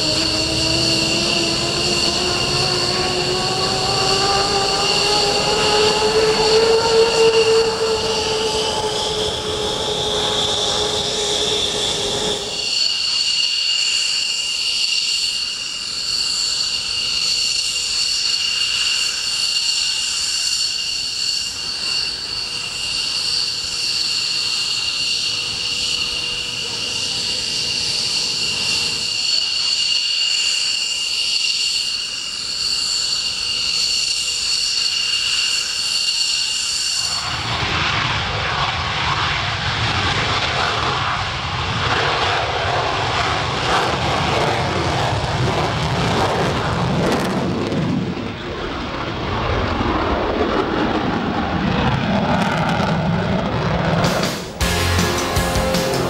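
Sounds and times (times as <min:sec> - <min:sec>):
low hum: 0:00.0 - 0:12.7
jet engines idling whine: 0:00.0 - 0:56.0.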